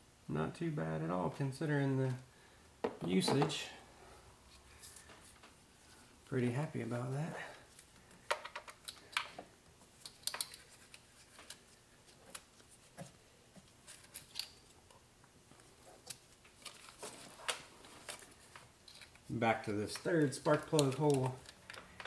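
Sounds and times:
tools clicking and tapping: 0:08.3 - 0:09.4, 0:10.0 - 0:10.7.

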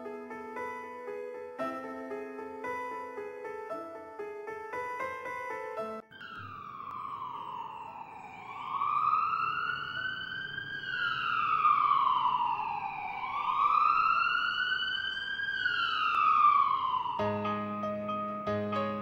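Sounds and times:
emergency siren wailing: 0:00.0 - 0:18.4.

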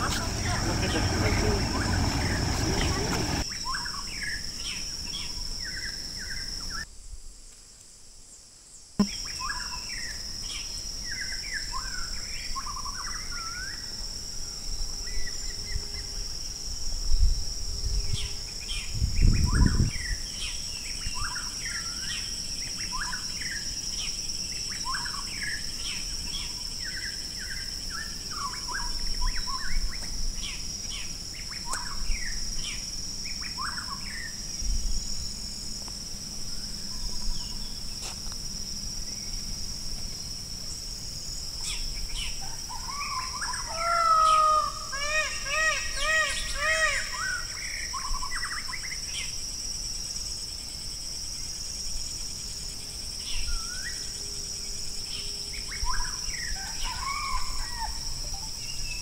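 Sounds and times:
low rumbling bumps: 0:00.0 - 0:03.4
birds chirping and whistling: 0:00.0 - 0:04.4
high-pitched insect drone: 0:00.0 - 0:06.9, 0:09.0 - 0:59.0.

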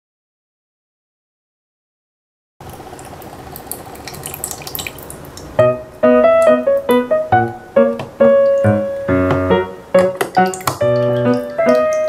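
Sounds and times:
water trickling into plastic cup: 0:02.6 - 0:05.6, 0:10.2 - 0:12.0
piano melody: 0:05.4 - 0:12.0.

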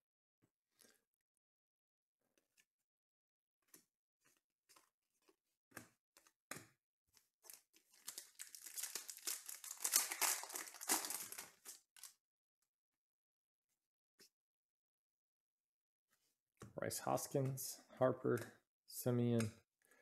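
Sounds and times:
foil wrapper tearing and crinkling: 0:07.5 - 0:12.1.

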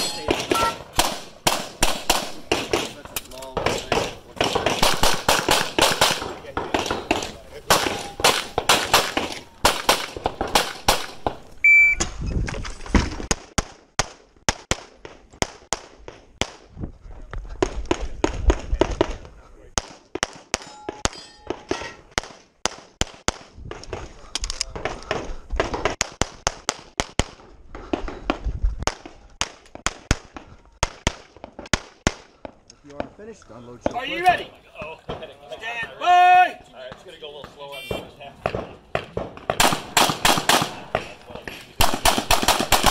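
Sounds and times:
pistol shots: 0:00.0 - 0:11.4, 0:37.8 - 0:42.9
shot timer beep: 0:11.6 - 0:12.0.

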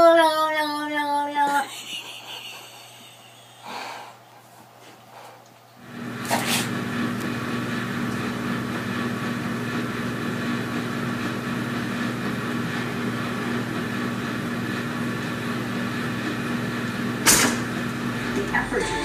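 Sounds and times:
appliance electrical hum with hiss: 0:01.1 - 0:19.0.

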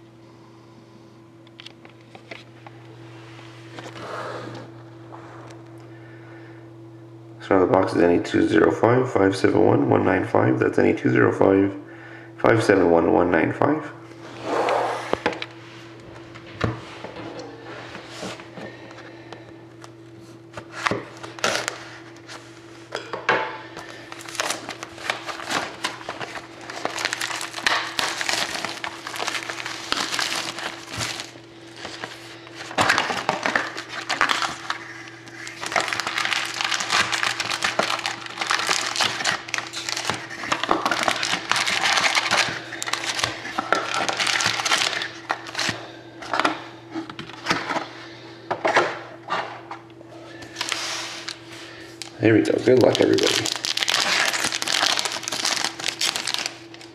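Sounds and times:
steady low hum: 0:00.0 - 0:56.9
foil packs rustling: 0:20.6 - 0:22.7, 0:23.8 - 0:46.6, 0:50.3 - 0:56.9
cellophane crinkling and tearing: 0:20.7 - 0:22.4, 0:23.8 - 0:46.4, 0:50.5 - 0:56.9
knife slitting shrink wrap: 0:24.2 - 0:45.8, 0:52.8 - 0:56.9.

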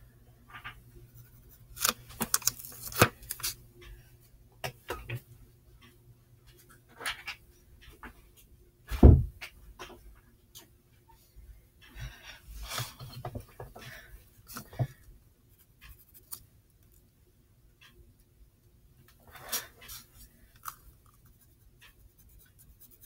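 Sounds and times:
heavy thump: 0:08.9 - 0:09.4.

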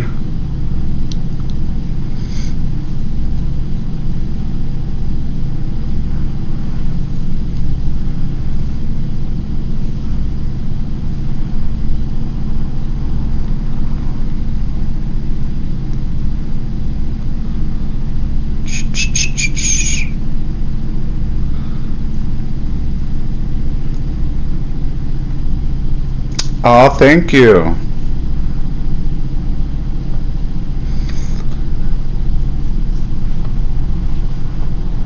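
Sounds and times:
faint hum: 0:00.0 - 0:35.0
loud low rumble: 0:00.0 - 0:35.0.

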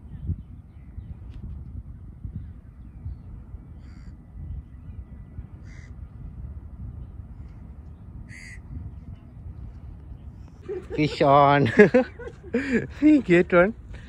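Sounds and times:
crow cawing: 0:05.6 - 0:06.0, 0:08.3 - 0:08.6.

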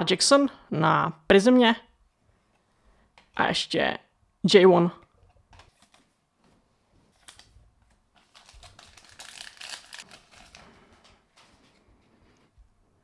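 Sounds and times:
foil wrapper tearing and crinkling: 0:08.2 - 0:10.7.

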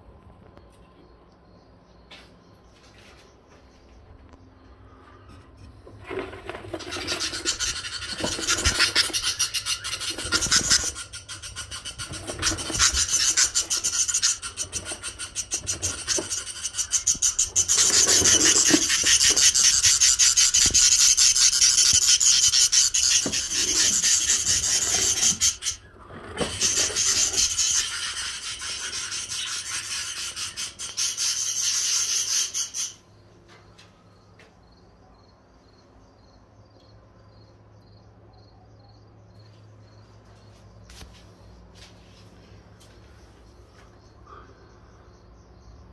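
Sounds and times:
budgerigars chattering: 0:06.6 - 0:33.0.

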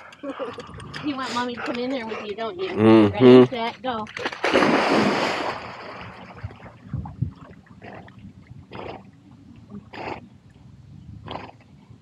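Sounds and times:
moving water: 0:00.0 - 0:12.0
dog paddling splashes: 0:03.9 - 0:08.1.

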